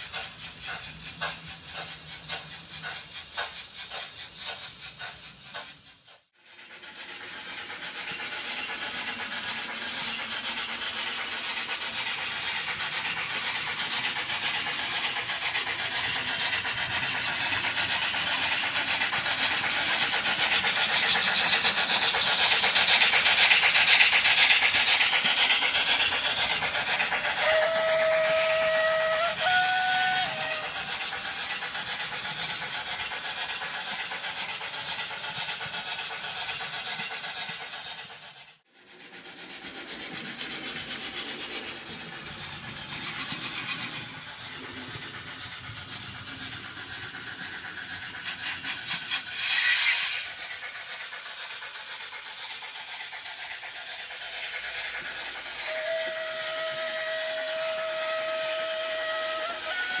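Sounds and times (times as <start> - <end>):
sharp blast of steam: 0.0 - 60.0
steam locomotive running hiss: 0.0 - 60.0
steam whistle: 27.3 - 30.8, 55.6 - 60.0.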